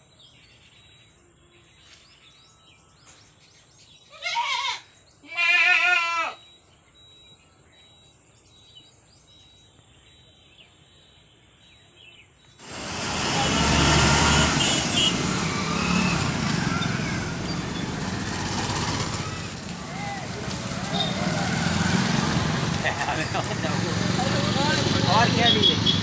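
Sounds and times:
goat bleating: 4.2 - 6.4
bus passing: 12.6 - 26.0.

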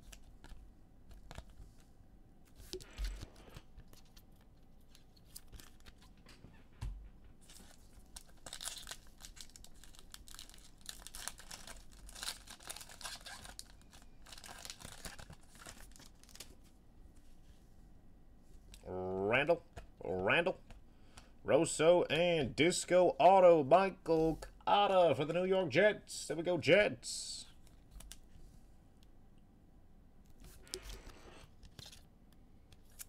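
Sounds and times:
foil wrapper tearing and crinkling: 7.4 - 16.6.

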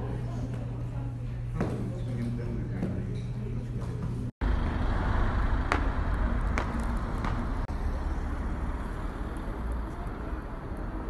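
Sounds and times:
road traffic rumble: 4.4 - 11.0.

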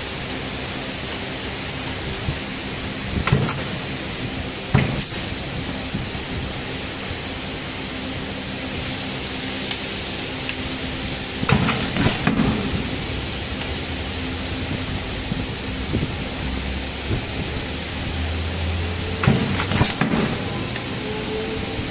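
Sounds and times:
filling machine humming: 0.0 - 21.9
pneumatic hisses and clunks: 3.1 - 6.0, 11.3 - 14.8, 19.1 - 21.1
thin high whine: 12.6 - 21.9.

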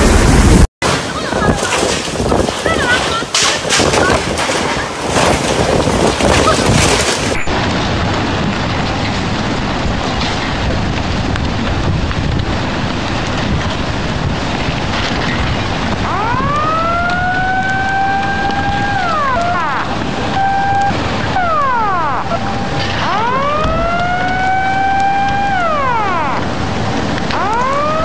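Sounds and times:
rushing floodwater roar: 0.0 - 28.0
wind and rain buffeting microphone: 0.0 - 28.0
warning siren: 16.0 - 28.0.

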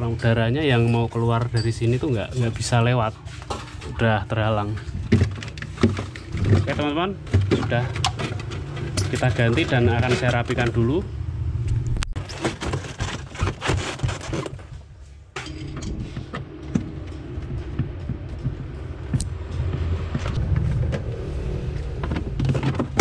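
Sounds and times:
plastic parts clicking and scraping: 4.7 - 11.0, 12.2 - 14.8, 21.9 - 23.0
low steady hum: 14.8 - 23.0.

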